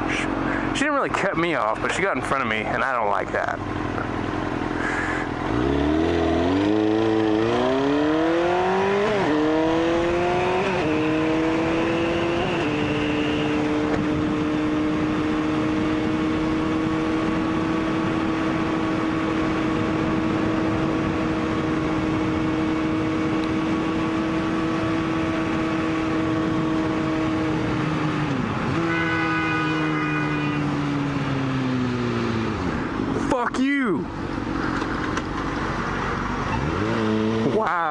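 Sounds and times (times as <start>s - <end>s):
motorcycle engine revving: 3.6s - 33.2s, 34.1s - 37.9s
car horn: 12.4s - 13.8s, 28.7s - 30.8s.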